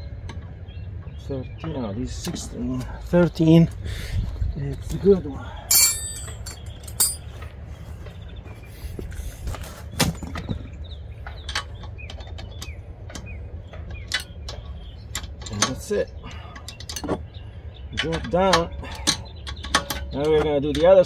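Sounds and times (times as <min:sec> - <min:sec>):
wrench clicking and knocking on metal: 0:17.9 - 0:21.0.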